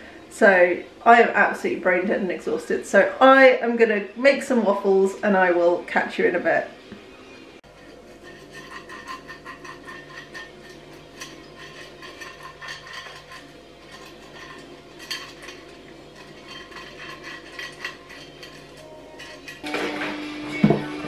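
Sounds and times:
brush scraping metal plate: 0:07.6 - 0:21.0.

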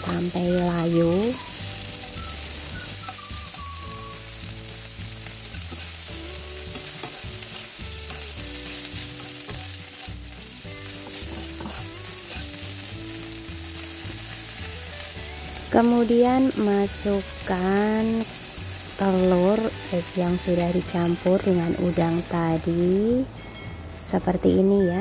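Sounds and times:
chives sizzling in hot oil: 0:00.0 - 0:23.3
spatula stirring in wok: 0:00.2 - 0:15.7.

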